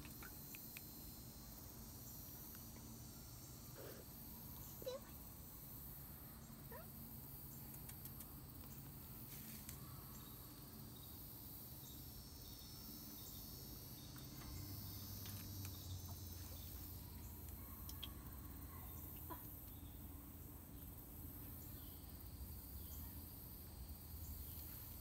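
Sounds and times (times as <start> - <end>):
faint chirps and clicks: 0.0 - 1.0, 4.5 - 5.2, 7.5 - 8.9, 15.2 - 20.0
insects droning: 0.0 - 25.0.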